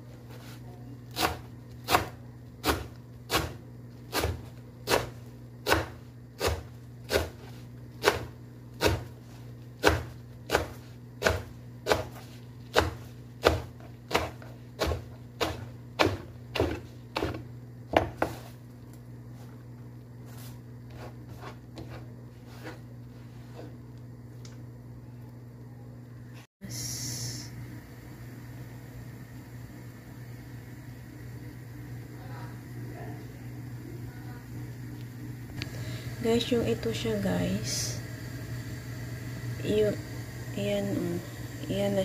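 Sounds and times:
knife chopping on wooden board: 0:01.1 - 0:09.2, 0:09.8 - 0:18.5.

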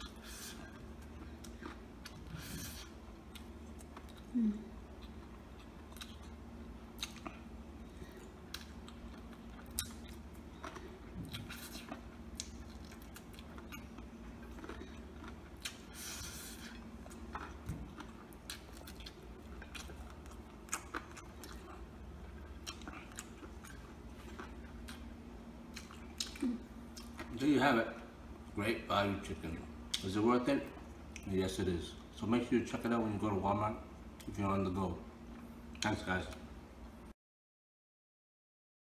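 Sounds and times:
man chewing meat off bone: 0:00.0 - 0:27.3.

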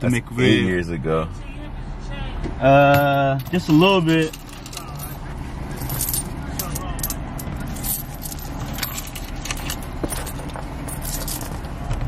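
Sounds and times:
car engine idling: 0:00.0 - 0:12.0
small metal objects jingling: 0:02.9 - 0:11.6.

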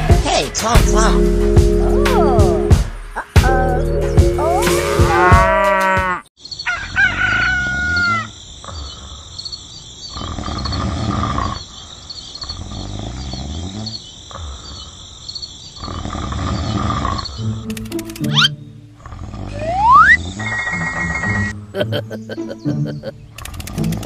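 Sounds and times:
farm animal calls: 0:04.4 - 0:09.1, 0:18.3 - 0:23.2
cartoon snoring: 0:10.1 - 0:11.7, 0:12.4 - 0:14.9, 0:15.8 - 0:17.6, 0:19.0 - 0:21.5
high chirping: 0:19.5 - 0:24.0.

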